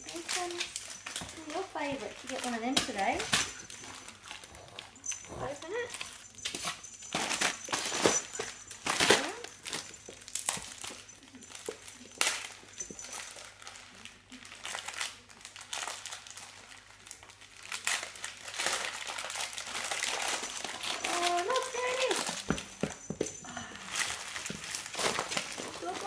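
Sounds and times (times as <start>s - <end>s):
wrapping paper crinkling: 0.0s - 22.5s, 23.6s - 26.0s.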